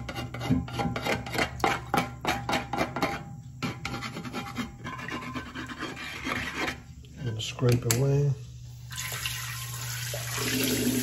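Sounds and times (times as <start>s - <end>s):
scraping inside clay pan: 0.0s - 7.0s.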